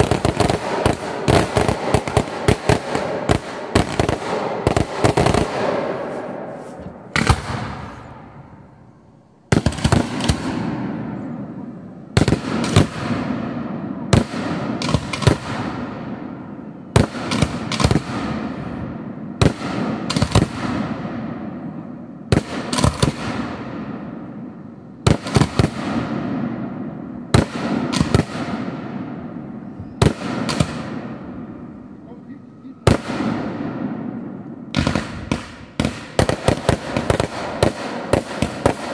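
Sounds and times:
firework shells bursting: 0.0 - 8.3.

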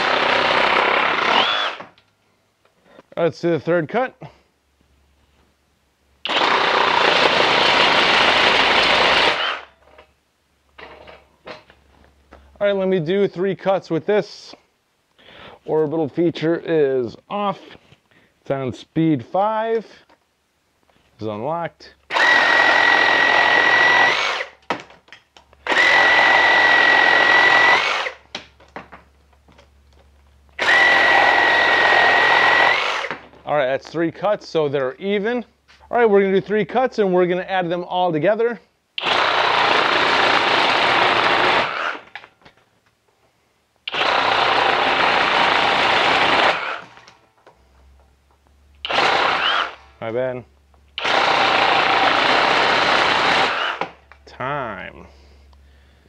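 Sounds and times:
reciprocating saw cutting wood: 0.0 - 1.9, 48.9 - 49.8.

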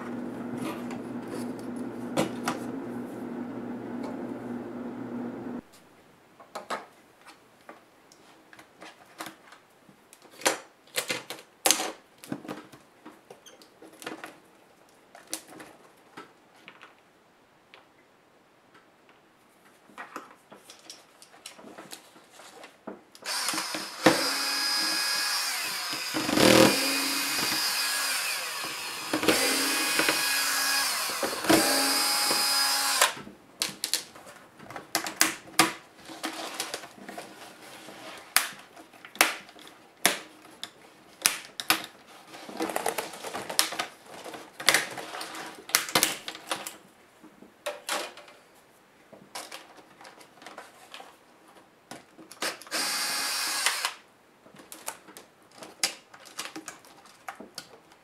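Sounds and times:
electric screwdriver whirring: 23.2 - 33.2, 52.7 - 54.0.

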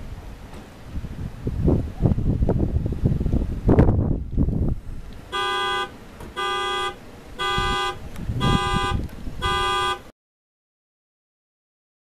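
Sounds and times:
car horn honking: 5.3 - 10.1.

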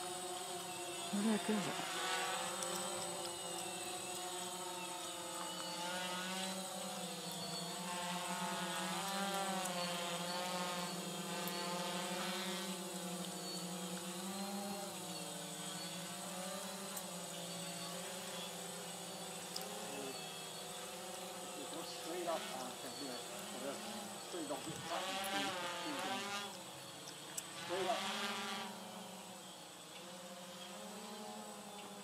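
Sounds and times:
drone motors humming: 0.0 - 32.0.

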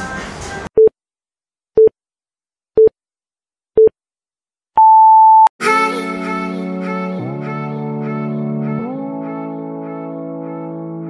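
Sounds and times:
electronic countdown beeps: 4.8 - 5.5
music: 5.6 - 11.0.

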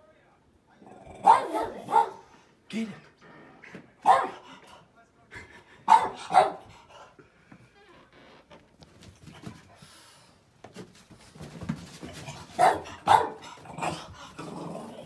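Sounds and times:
dog barking: 1.2 - 2.3, 4.0 - 4.5, 5.9 - 6.7, 12.6 - 13.5.

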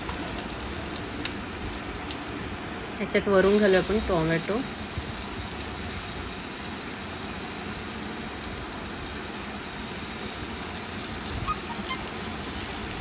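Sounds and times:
vegetables sizzling in hot oil: 0.0 - 13.0.

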